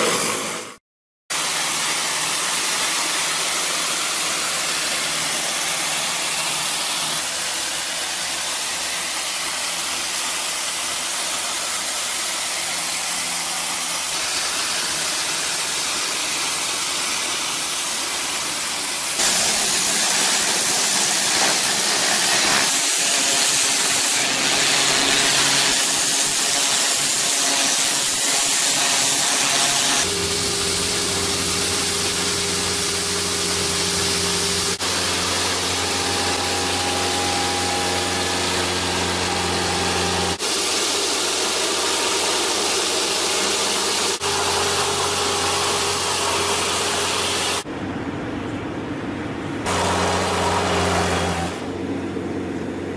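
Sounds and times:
pressure washer water jet hissing: 0.0 - 47.7, 49.6 - 51.7
small engine humming: 30.0 - 47.7.

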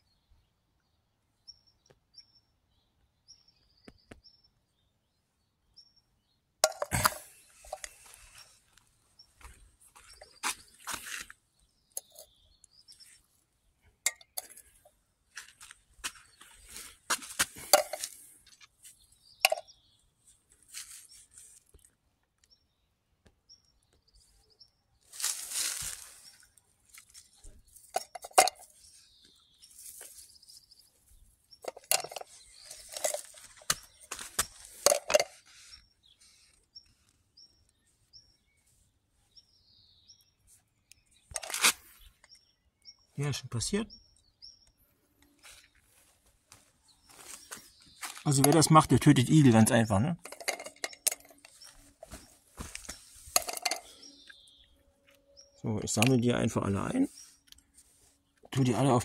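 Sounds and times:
sharp clicks and clinks: 6.6 - 8.0, 11.9 - 12.3, 14.0 - 14.8, 17.5 - 18.2, 19.4 - 19.7, 27.8 - 28.7, 31.6 - 35.4, 50.2 - 51.7, 53.4 - 54.4
footsteps on paved path: 7.6 - 11.4, 15.2 - 19.1, 32.2 - 35.0, 45.4 - 48.8, 50.6 - 54.6
faint bird chirps: 50.8 - 59.0.

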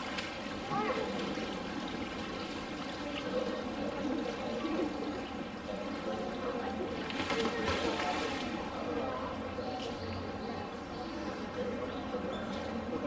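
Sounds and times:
running water rushing: 0.0 - 9.1
faint indistinct voices: 0.0 - 13.0.

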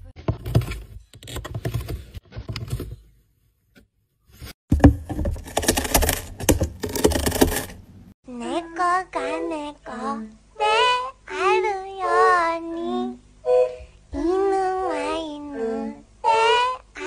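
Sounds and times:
cat scratching cardboard box: 4.7 - 7.8.

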